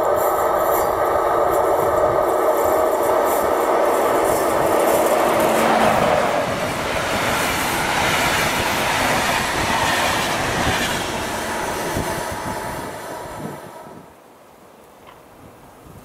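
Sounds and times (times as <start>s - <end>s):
train coaches rumbling past: 0.0s - 14.3s.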